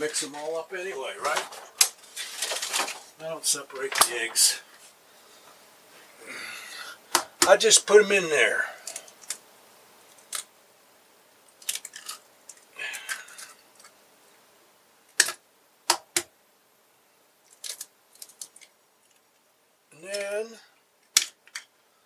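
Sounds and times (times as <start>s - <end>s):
eggshells breaking open: 11.6s - 13.9s.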